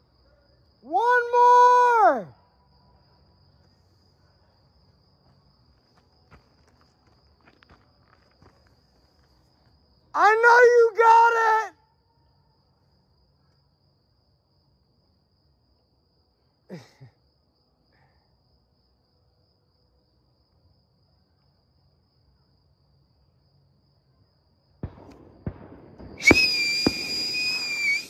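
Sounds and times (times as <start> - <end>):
firework pops: 24.8 - 28.0
firework whistle: 26.0 - 28.0.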